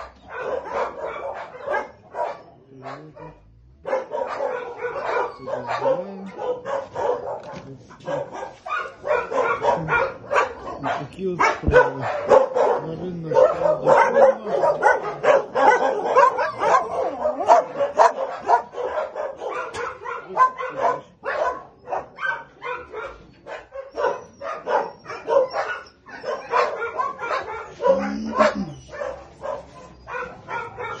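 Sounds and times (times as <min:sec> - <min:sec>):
dogs barking: 0:00.0 - 0:31.0
dog whining: 0:04.2 - 0:07.3, 0:21.7 - 0:31.0.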